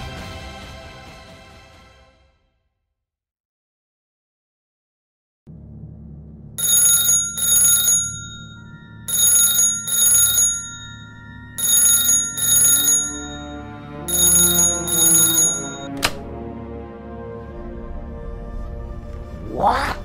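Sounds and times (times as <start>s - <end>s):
low music drone: 5.5s - 6.8s, 10.4s - 19.7s
telephone ringing: 6.6s - 16.0s.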